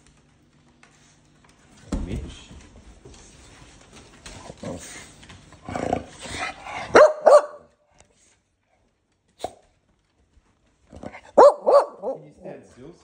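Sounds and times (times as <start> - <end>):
dog barking: 6.8 - 7.7, 11.3 - 12.4.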